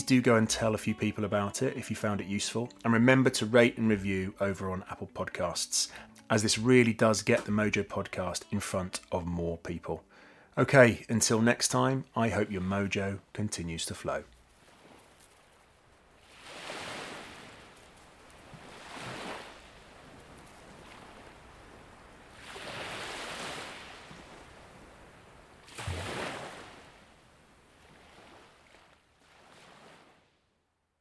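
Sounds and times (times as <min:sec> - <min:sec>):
ocean waves breaking: 0:13.4 - 0:30.5.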